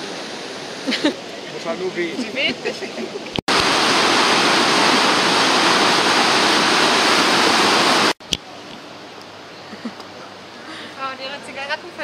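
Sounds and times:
water roaring through sluice: 0:00.0 - 0:08.2.

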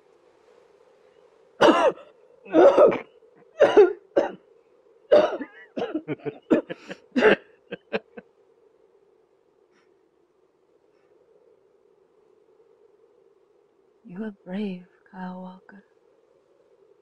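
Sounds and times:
woman coughing hard: 0:01.6 - 0:03.0, 0:03.6 - 0:04.4, 0:05.1 - 0:07.4
woman laughing: 0:05.5 - 0:08.2.

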